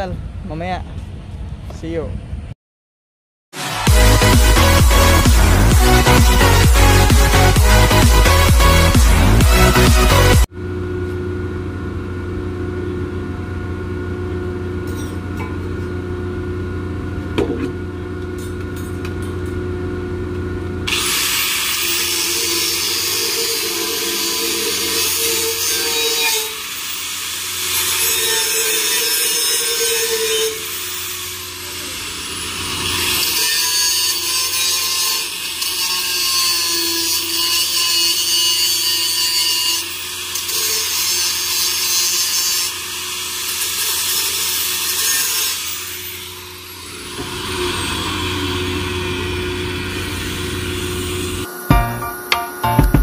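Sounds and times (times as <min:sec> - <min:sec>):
grinder cutting metal: 0:03.6 - 0:10.5, 0:20.9 - 0:52.5
angle grinder motor hum: 0:03.8 - 0:52.4.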